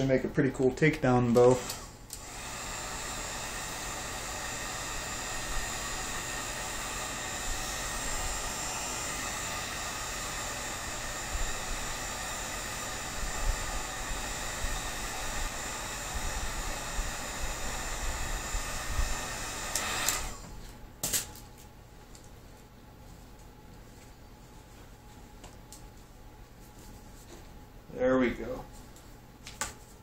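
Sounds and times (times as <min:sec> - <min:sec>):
heat gun blowing: 0:01.0 - 0:20.8.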